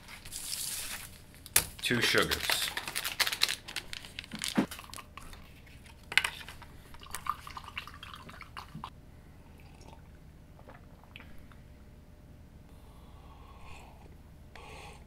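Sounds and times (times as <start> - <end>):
paper packets crinkling: 0.0 - 6.6.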